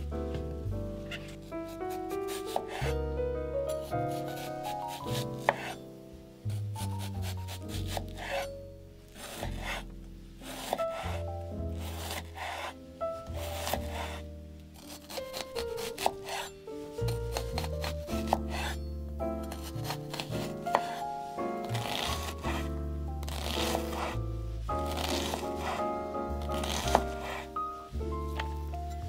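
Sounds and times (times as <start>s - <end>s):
background music with bass line: 0.0s - 5.6s, 17.0s - 29.0s
food rubbing and scraping by hand: 1.0s - 3.0s, 3.7s - 5.8s, 6.5s - 29.0s.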